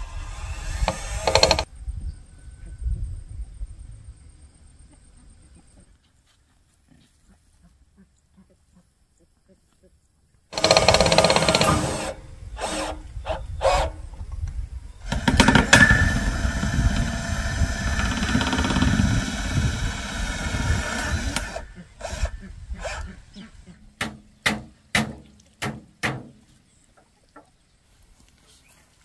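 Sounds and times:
drill clicking: 0.0 - 1.7, 10.6 - 13.0, 15.1 - 22.3
drill motor running: 0.0 - 1.7, 10.6 - 14.0, 15.0 - 23.1
sharp knocks: 24.0 - 26.4.

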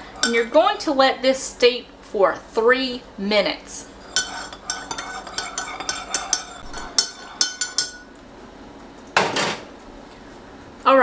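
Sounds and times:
metal spoon clinking in mug: 0.2 - 0.4, 4.0 - 8.1.

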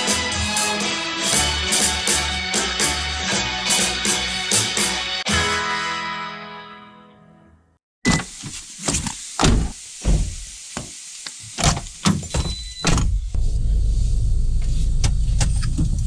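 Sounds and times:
car engine starting and running: 13.1 - 16.0.

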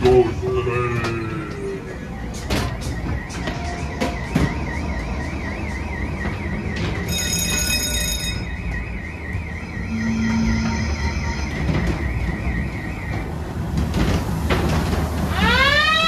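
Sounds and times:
ride car rumbling on track: 0.0 - 16.0
warbling electronic alarm tone: 3.2 - 13.2
high electronic buzz: 9.7 - 11.8.

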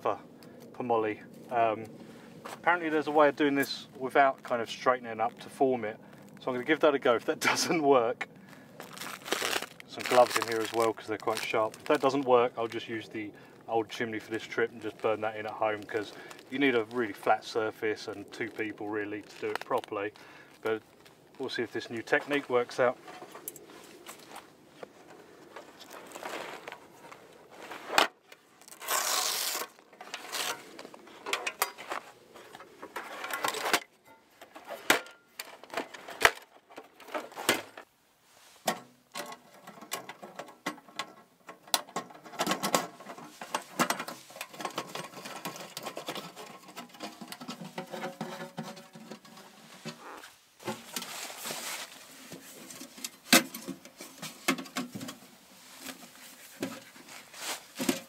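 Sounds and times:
dry leaves rustling: 8.5 - 12.3, 28.5 - 31.2, 50.6 - 52.6
fabric bag rustling: 8.8 - 12.8, 25.6 - 31.2, 49.6 - 52.6.

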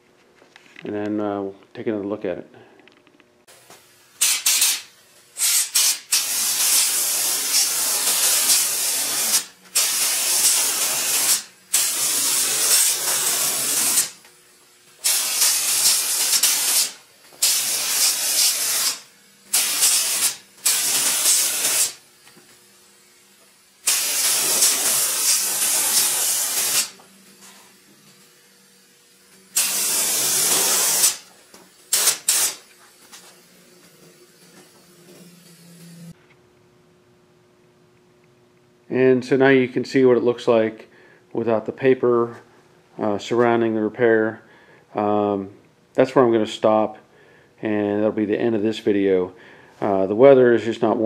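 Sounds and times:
spray gun hissing: 4.2 - 14.2, 14.9 - 22.0, 23.8 - 27.8, 29.5 - 36.2.

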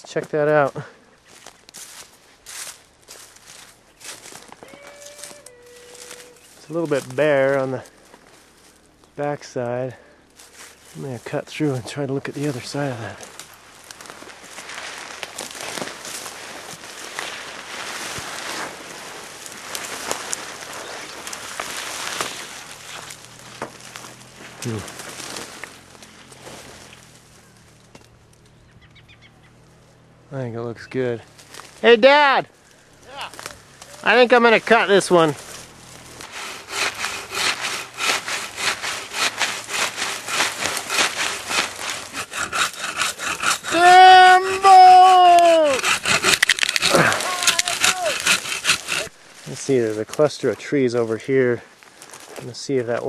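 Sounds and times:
branches rustling and scraping: 0.0 - 53.0
twigs snapping: 13.2 - 18.8, 19.4 - 28.6, 33.3 - 34.0, 35.4 - 43.7, 45.8 - 49.5
hand saw cutting wood: 34.1 - 49.2.

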